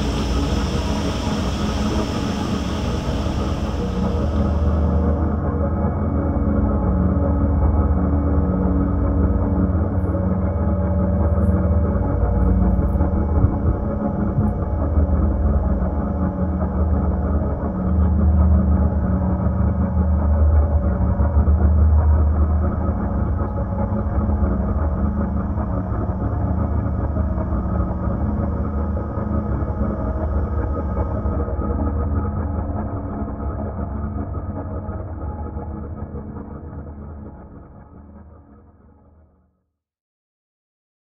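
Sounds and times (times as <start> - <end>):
low rumbling drone: 0.0 - 5.7.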